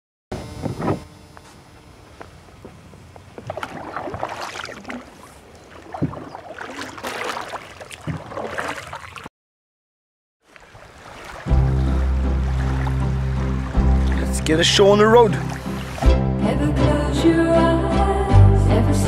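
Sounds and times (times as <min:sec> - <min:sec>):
paddle splashing water: 0:02.3 - 0:09.3, 0:10.4 - 0:16.2.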